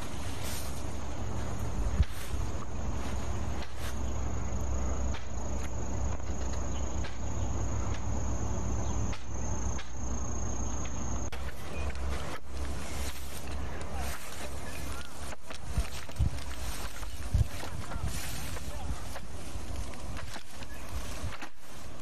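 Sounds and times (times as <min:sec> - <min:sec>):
high-pitched insect trill: 0:00.0 - 0:13.4.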